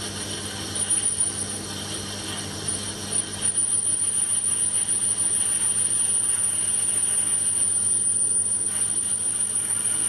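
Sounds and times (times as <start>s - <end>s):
high-pitched whine: 0.0s - 10.0s
metal lathe motor hum: 0.0s - 10.0s.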